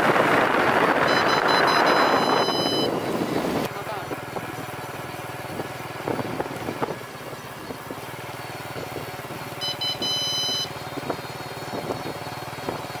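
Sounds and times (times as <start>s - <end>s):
electronic beeps: 1.0s - 3.0s, 9.6s - 10.7s.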